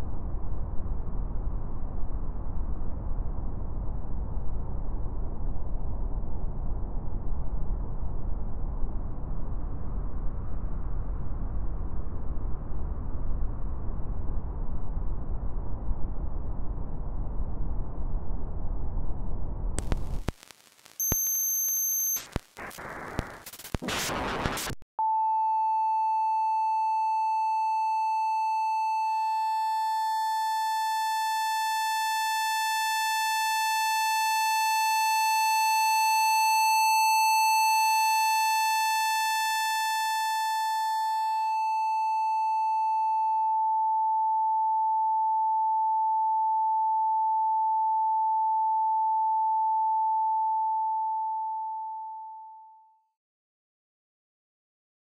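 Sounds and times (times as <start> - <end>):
rush of noise and static: 0.0 - 24.8
steady pure sine tone: 0.0 - 53.0.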